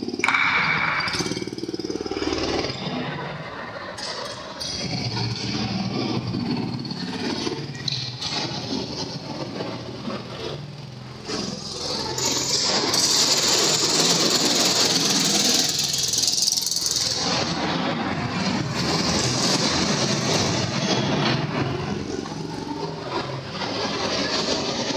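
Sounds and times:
go-kart engines running: 0:00.0 - 0:24.9
hissing rattling engine rise: 0:10.6 - 0:24.9.

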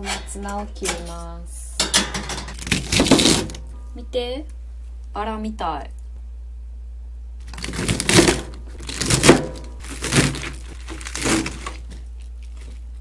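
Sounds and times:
knife crunching through greens: 0:07.4 - 0:13.0.

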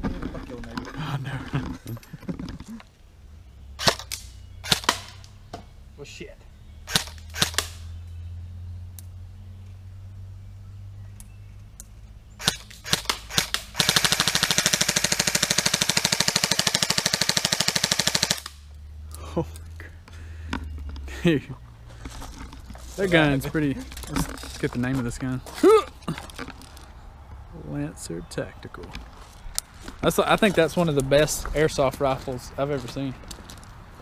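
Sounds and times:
airsoft rifle firing: 0:03.8 - 0:05.2, 0:06.9 - 0:07.8, 0:12.4 - 0:18.6.

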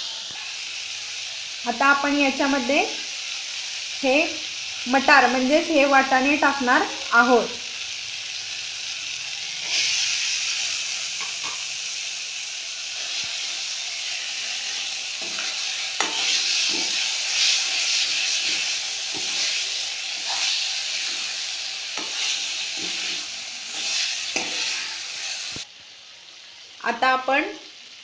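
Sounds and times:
food sizzling in oil: 0:00.0 - 0:28.0
metal spoon scraping pan: 0:13.0 - 0:25.3.

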